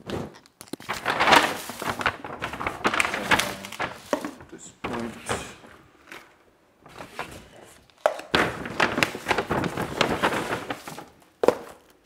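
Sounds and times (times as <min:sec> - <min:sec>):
plastic packaging crinkling: 0:00.4 - 0:05.2, 0:06.8 - 0:12.0
packets set down on countertop: 0:03.2 - 0:05.0, 0:10.7 - 0:11.9.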